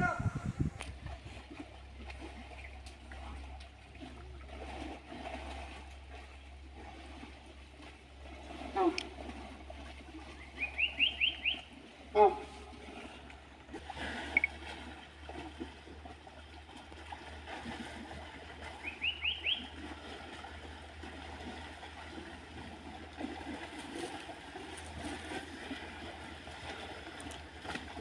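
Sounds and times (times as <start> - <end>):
low steady rumble: 0.0 - 28.0
water splashing and trickling: 0.0 - 28.0.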